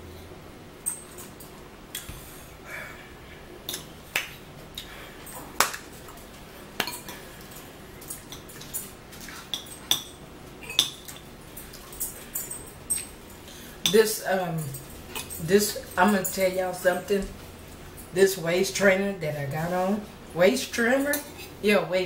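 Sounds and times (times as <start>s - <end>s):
tableware clinking: 8.0s - 13.2s.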